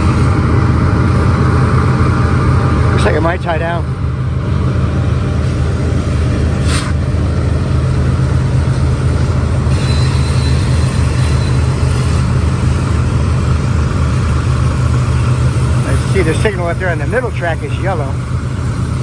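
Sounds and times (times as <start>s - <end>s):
freight train rumbling: 0.0s - 19.0s
brief hiss: 6.6s - 7.0s.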